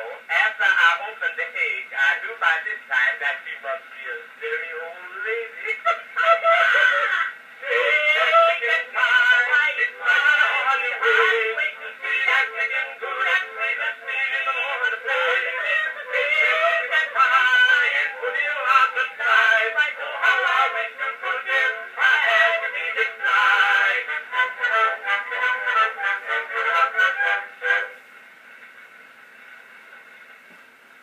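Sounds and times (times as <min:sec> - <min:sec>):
phonograph playing a sung song: 0:00.0 - 0:31.0.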